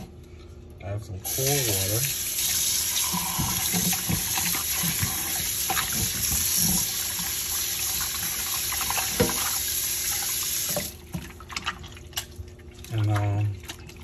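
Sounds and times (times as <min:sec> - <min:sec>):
faucet running into a pot: 0:01.3 - 0:11.0.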